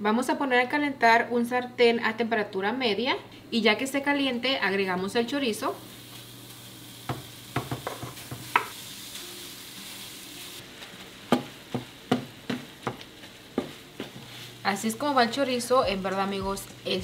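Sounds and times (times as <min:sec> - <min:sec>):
sausage sizzling in a pan: 0:05.1 - 0:17.0
chopper knocking on a pan: 0:07.0 - 0:08.8, 0:11.3 - 0:13.0.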